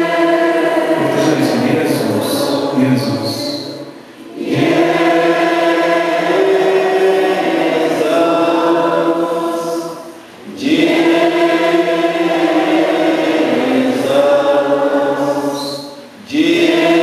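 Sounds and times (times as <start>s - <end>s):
voices singing slow chant: 0.0s - 17.0s.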